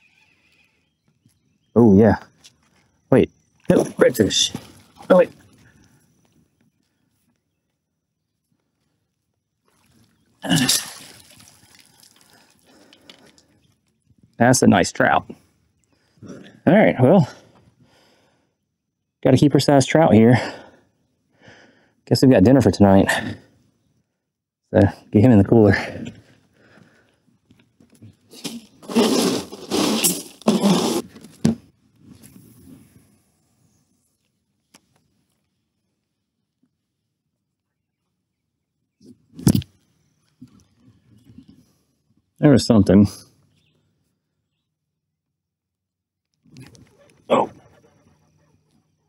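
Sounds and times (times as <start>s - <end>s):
fish splashing at water surface: 10.5s - 12.6s
fish scraping in a cooler: 28.4s - 31.2s.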